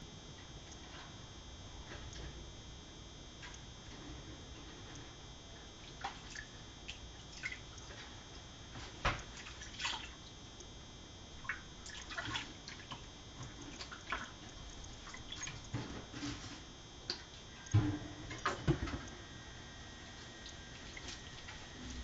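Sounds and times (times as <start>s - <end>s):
water splashing in sink: 5.8s - 8.1s, 8.9s - 10.3s, 11.4s - 16.4s, 20.3s - 22.0s.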